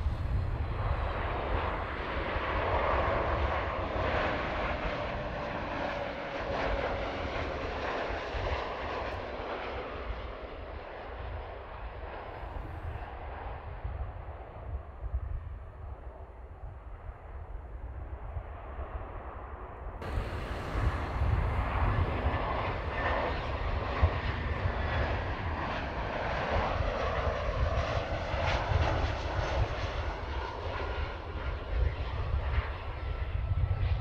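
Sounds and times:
jet engines rushing: 0.0 - 14.0, 18.4 - 34.0
dull rumble: 20.0 - 25.6
thin engine whine: 20.0 - 27.2.

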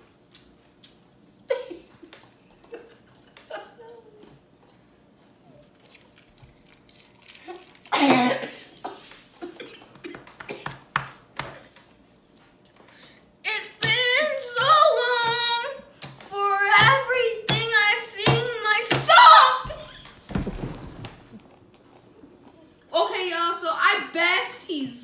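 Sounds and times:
child singing: 13.5 - 19.7.

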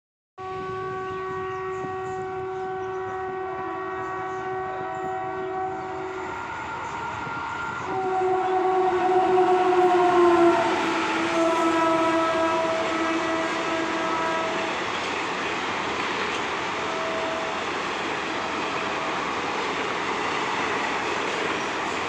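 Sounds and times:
locomotive horn blasts: 0.4 - 14.8, 16.8 - 19.4
train rumbling and rattling past: 0.4 - 22.0.

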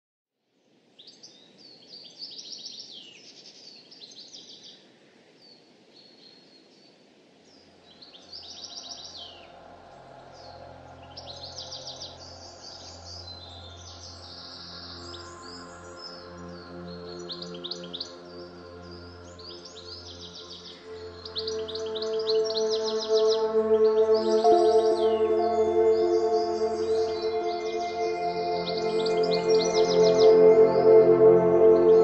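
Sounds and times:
birds chirping and trilling: 8.0 - 32.0
soft background music: 8.7 - 32.0.

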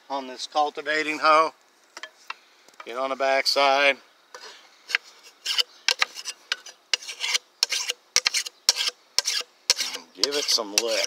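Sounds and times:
steel file rasping on blade: 5.4 - 11.0.

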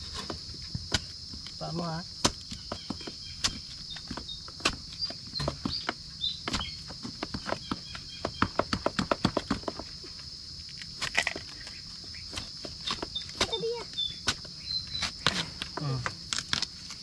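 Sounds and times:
crackles snaps and knocks: 10.6 - 11.8, 15.2 - 17.0.

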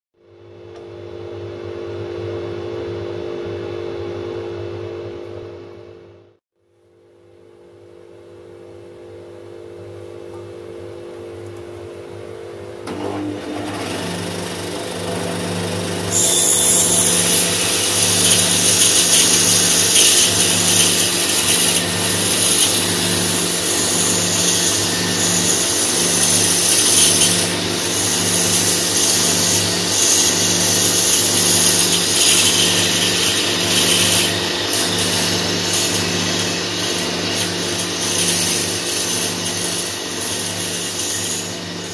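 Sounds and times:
bandsaw running: 12.9 - 41.9
saw blade cutting wood: 13.2 - 41.9.

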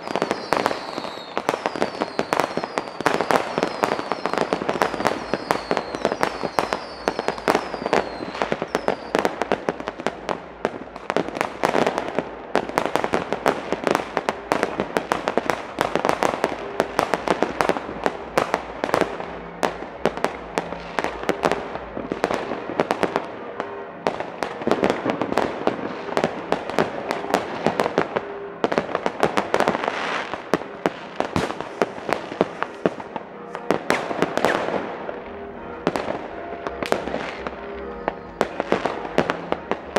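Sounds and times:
falling firework whistles: 0.0 - 9.3
fireworks crackling and banging: 0.0 - 39.9.

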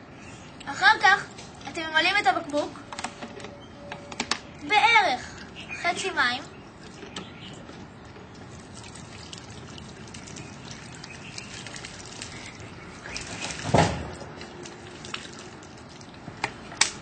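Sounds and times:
water pouring into plastic bottle: 8.0 - 16.2.

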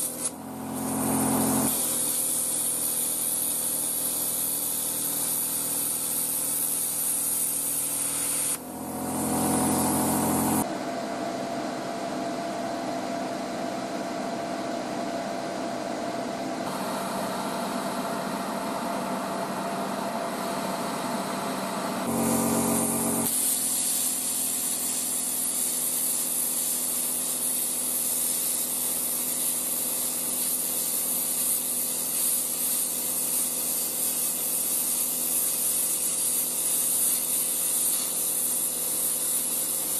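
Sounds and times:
plasma cutter hissing: 0.0 - 10.6, 22.0 - 39.9
compressor running with held tone: 0.0 - 39.9.

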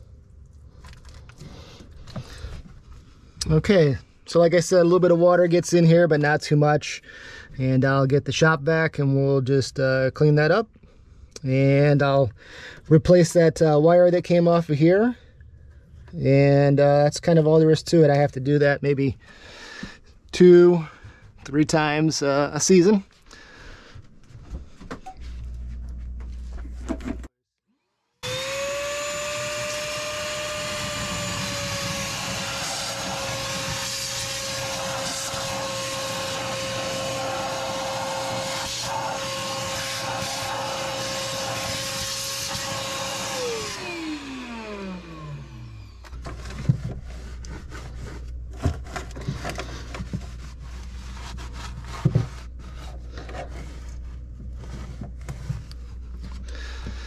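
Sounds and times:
shop vac whining: 28.2 - 57.0.

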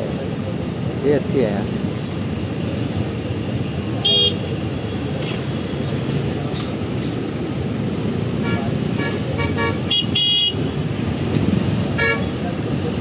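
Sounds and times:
rumble of idling engines: 0.0 - 13.0
car horn beeps: 4.0 - 5.1, 8.4 - 10.7, 12.0 - 12.4.

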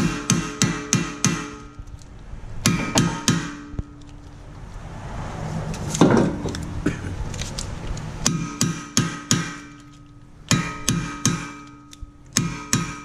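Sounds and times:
hammer striking impact driver: 0.0 - 1.8, 2.6 - 3.9, 8.2 - 9.8, 10.5 - 13.0.

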